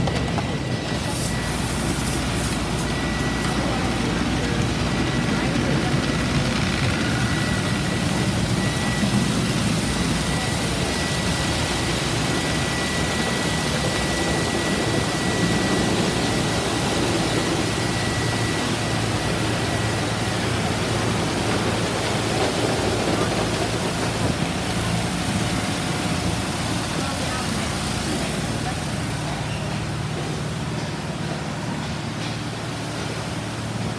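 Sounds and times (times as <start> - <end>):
faint high whine: 0.0 - 31.8
machinery hum: 0.0 - 33.9.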